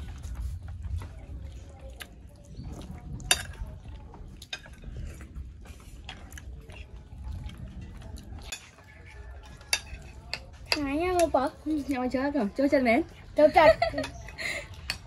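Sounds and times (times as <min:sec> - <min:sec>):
chewing: 0:00.0 - 0:12.0.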